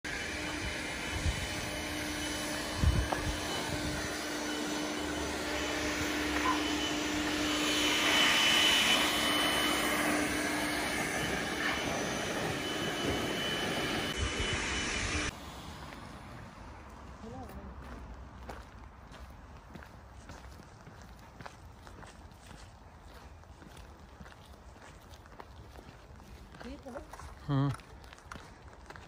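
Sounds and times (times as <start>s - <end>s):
distant engine noise: 0.1s - 19.7s.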